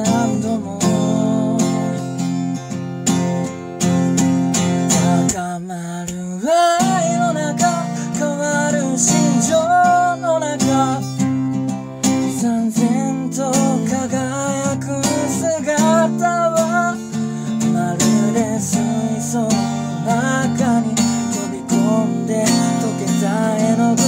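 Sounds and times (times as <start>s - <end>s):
man singing: 0.0s - 2.4s, 4.7s - 24.0s
acoustic guitar strumming: 0.0s - 24.0s.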